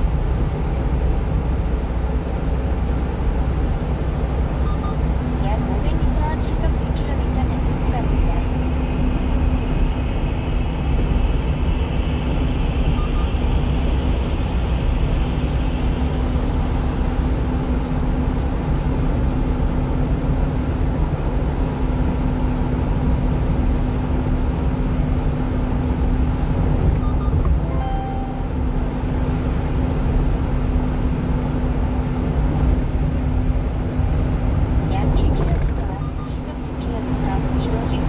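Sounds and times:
truck road and engine noise: 0.0s - 38.0s.

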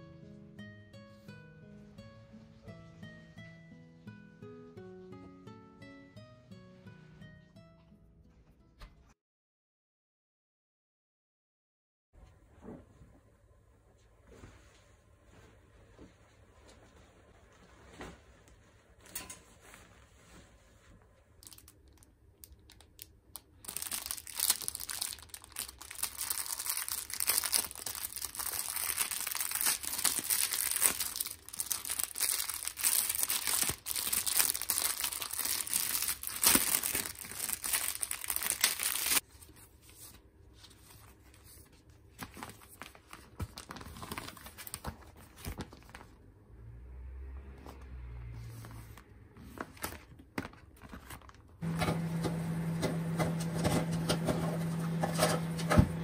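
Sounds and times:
plastic wrap crinkling and tearing: 21.4s - 39.2s, 42.2s - 46.2s, 49.6s - 51.8s
paper bag rustling: 23.6s - 39.6s, 48.6s - 56.0s.

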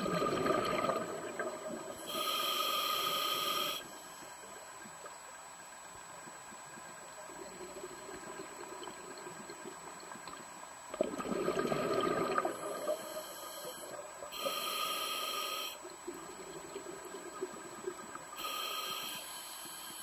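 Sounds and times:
exhaled bubbles rushing: 0.0s - 1.9s, 10.9s - 13.0s
hissing regulator inhalation: 2.0s - 3.9s, 12.4s - 15.8s, 18.4s - 20.0s.

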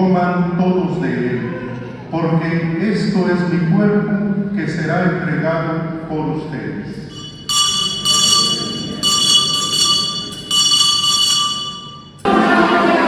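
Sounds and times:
altar bells ringing: 7.0s - 13.0s
choir singing: 12.2s - 13.0s.

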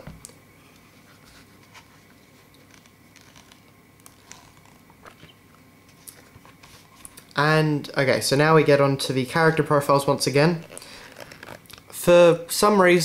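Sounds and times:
book pages turning: 1.0s - 7.2s, 10.6s - 11.9s.

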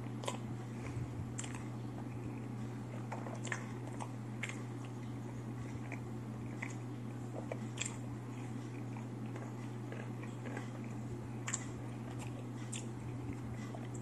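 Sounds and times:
person chewing crunchy food: 0.0s - 14.0s
steady low hum: 0.0s - 14.0s.

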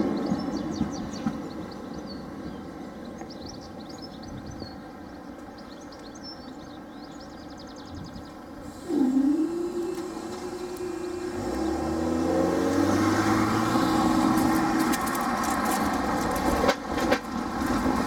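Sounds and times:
electric train rumble: 0.0s - 5.1s, 8.2s - 18.0s
birds chirping: 0.0s - 15.4s
motor whine and hum: 8.7s - 14.7s.

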